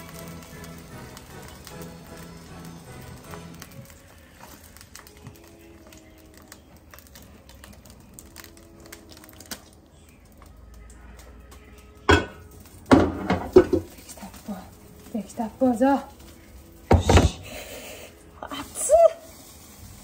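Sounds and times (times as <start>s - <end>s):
faint music with held notes: 0.0s - 20.0s.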